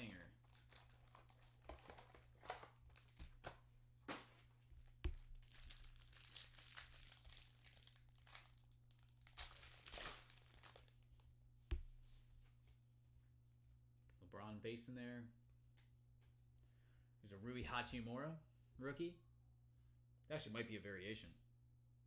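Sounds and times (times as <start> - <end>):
plastic wrapper tearing and crinkling: 0.0 - 3.5, 4.8 - 11.0
box crackling and rustling: 0.0 - 10.9.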